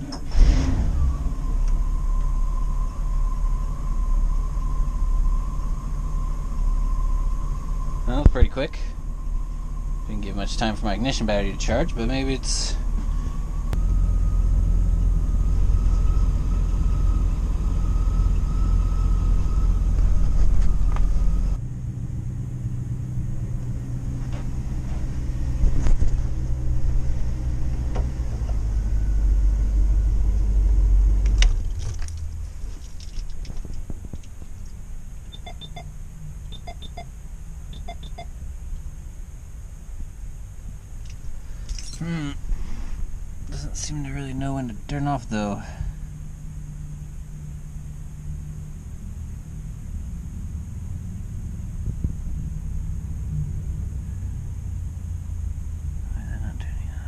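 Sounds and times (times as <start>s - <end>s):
engine idling: 0.0s - 57.0s
steady high whine: 0.0s - 57.0s
faint light clinks: 41.0s - 42.1s.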